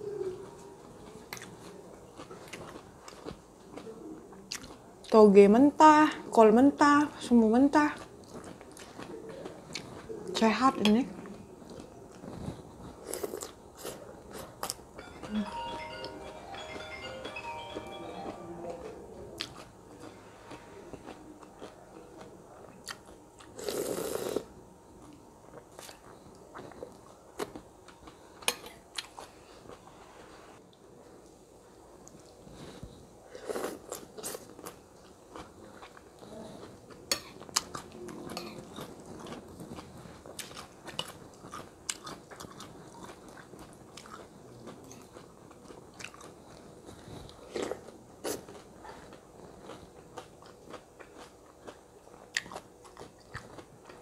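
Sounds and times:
crunchy chewing: 1.3s - 4.8s, 19.4s - 29.8s, 32.0s - 54.0s.

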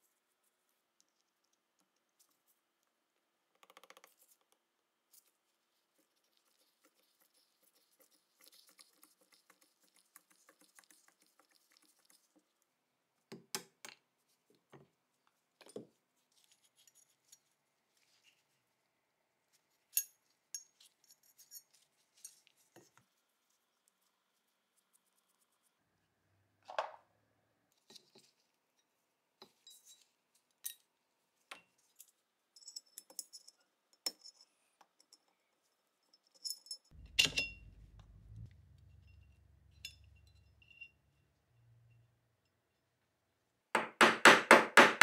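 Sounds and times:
faint metallic scraping: 36.1s - 42.6s.

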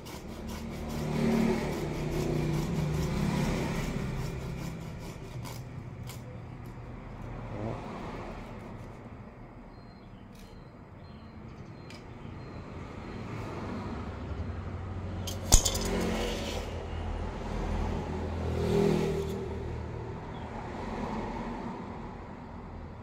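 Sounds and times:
passing road vehicle rumbling: 0.0s - 9.7s, 11.4s - 23.0s
metal knife clinking on tiles: 15.3s - 16.4s.

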